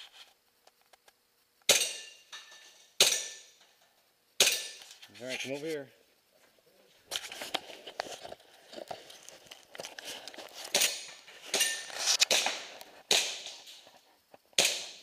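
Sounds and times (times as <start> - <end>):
airsoft pistol shots: 1.7 - 2.2, 3.0 - 3.5, 10.7 - 13.5, 14.6 - 15.0.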